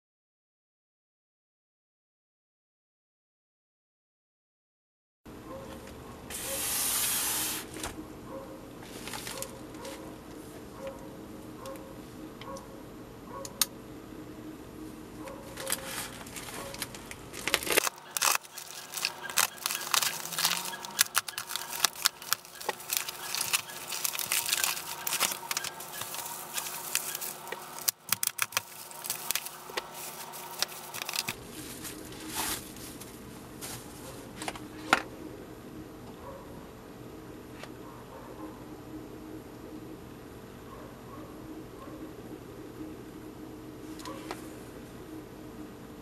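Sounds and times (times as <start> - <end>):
plastic mailer tearing open: 8.8 - 10.0, 15.6 - 33.0
bubble wrap crinkling: 8.8 - 10.2, 15.4 - 34.5.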